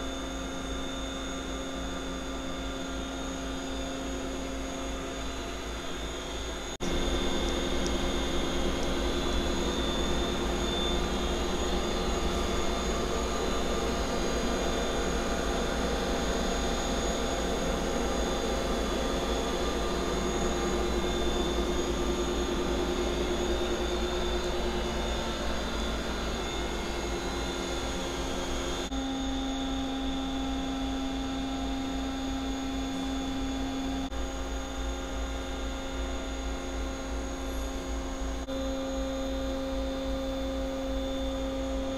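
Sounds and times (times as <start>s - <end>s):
machine hum and whir: 0.0s - 41.9s
steady machine tones: 0.0s - 41.9s.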